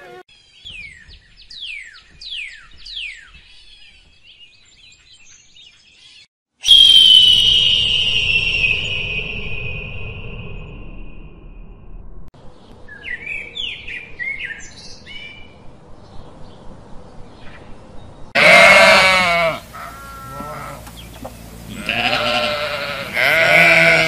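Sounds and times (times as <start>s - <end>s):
small birds chirping: 0.3s - 6.3s, 19.7s - 23.4s
sheep bleating: 18.4s - 20.8s, 21.7s - 24.0s.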